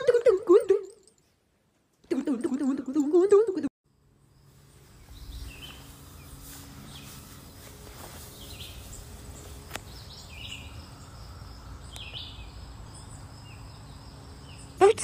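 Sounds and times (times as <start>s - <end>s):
small birds chirping: 4.3s - 15.0s.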